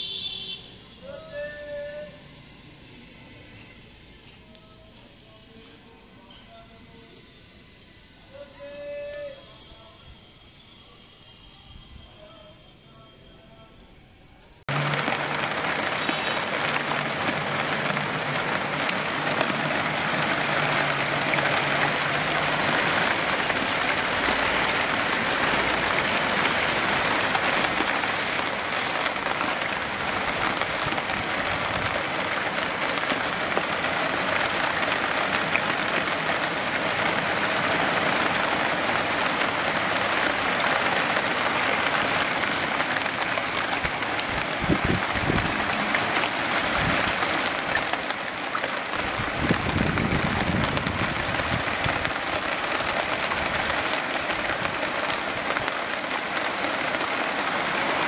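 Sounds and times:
rain falling on leaves and water: 14.7s - 58.0s.

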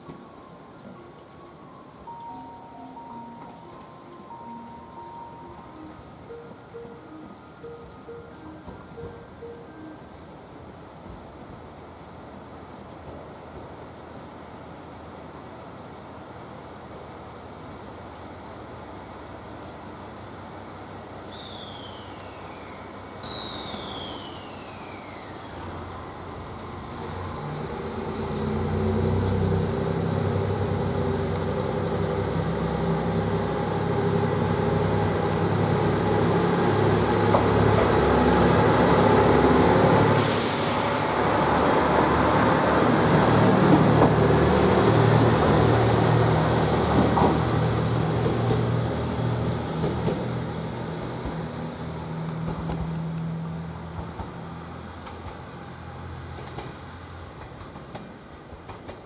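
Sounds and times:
diesel railcar engine revving: 23.3s - 58.8s
air hiss: 39.9s - 43.0s.

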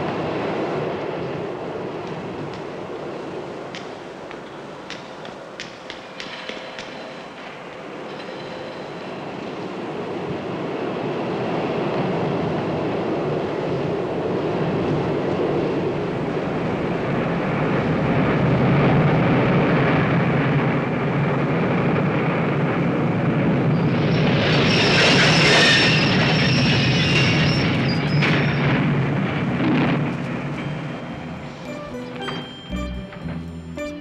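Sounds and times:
subway train running on rails: 0.0s - 34.0s
high-pitched wheel squeal: 23.7s - 28.9s.

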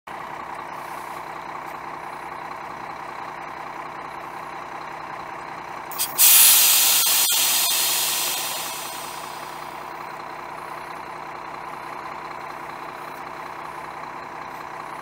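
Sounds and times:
diesel bus engine idling: 0.1s - 15.0s
air brakes hiss: 5.9s - 9.8s.

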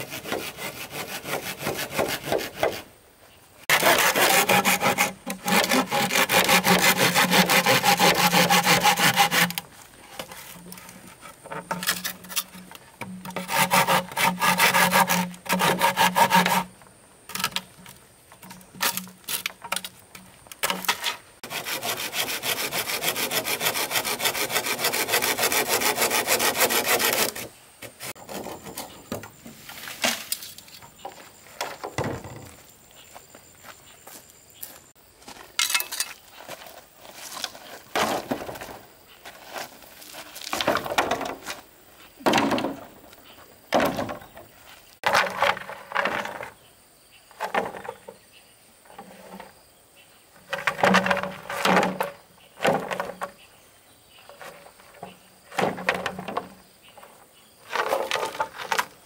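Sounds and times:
bamboo being sawn: 0.0s - 2.9s, 3.6s - 17.6s, 20.7s - 30.4s, 57.6s - 59.0s.

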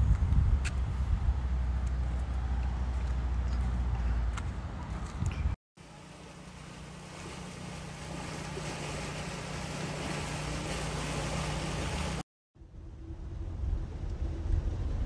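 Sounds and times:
floodwater rushing: 5.8s - 12.2s
vehicle driving through water: 5.9s - 12.2s.

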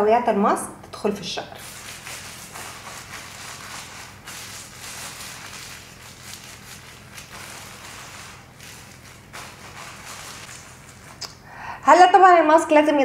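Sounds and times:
foil cap crinkling: 1.6s - 11.4s.

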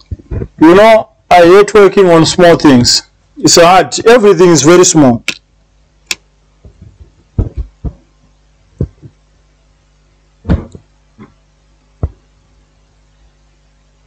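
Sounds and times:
short knocks and taps: 6.6s - 8.0s.

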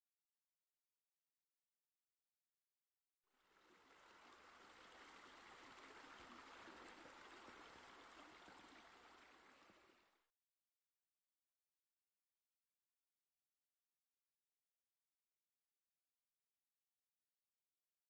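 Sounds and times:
fountain water trickling: 3.3s - 10.2s.

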